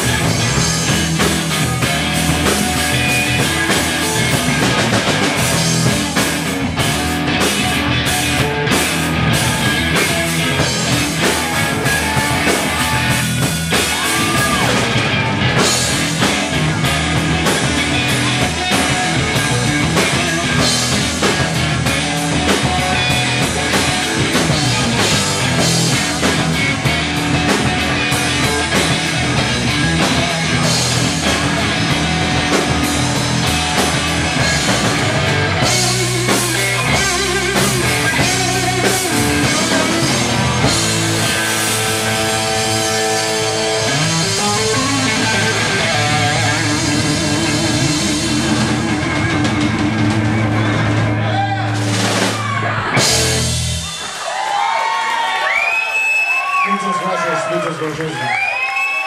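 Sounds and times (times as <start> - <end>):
live rock band playing: 0.0 - 59.0.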